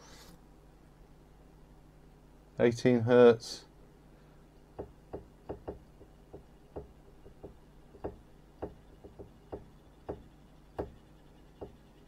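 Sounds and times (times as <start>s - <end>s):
actuator knocking against end stops: 4.8s - 11.0s, 11.6s - 11.9s.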